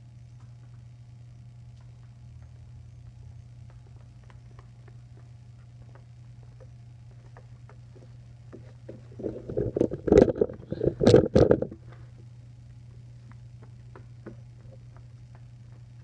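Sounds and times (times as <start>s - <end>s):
steady low hum: 0.0s - 16.0s
recording device being handled: 9.1s - 12.0s.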